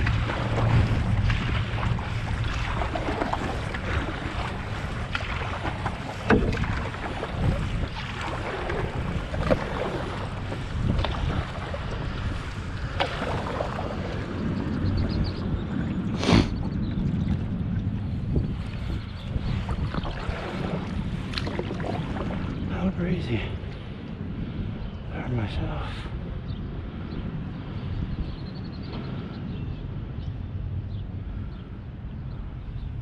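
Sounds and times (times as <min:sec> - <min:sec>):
paddle knocking and splashing: 0:00.0 - 0:22.8
water splashing and lapping: 0:00.0 - 0:24.7
wind buffeting microphone: 0:00.0 - 0:33.0.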